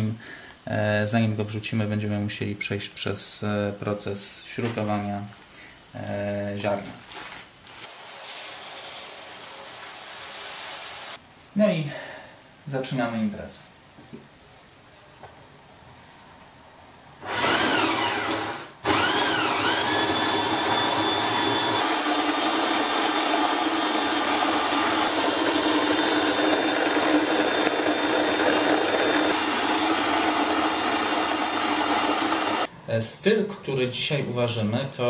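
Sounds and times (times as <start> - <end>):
grain mill motor whining: 17.2 - 32.7.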